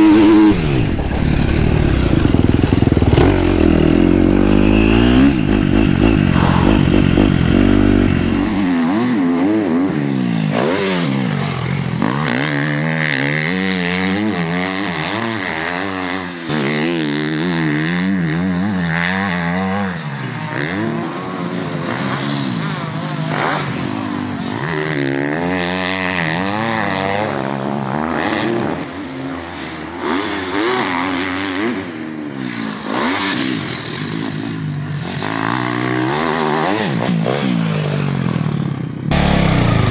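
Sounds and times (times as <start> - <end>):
motocross bike engine revving: 0.0 - 28.7, 30.0 - 39.9.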